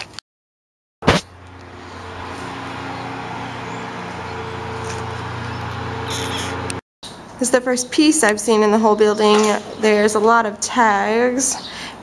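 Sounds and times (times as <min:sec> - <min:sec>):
sharp knock: 0:01.0 - 0:01.3
vehicle engine humming: 0:01.2 - 0:06.8.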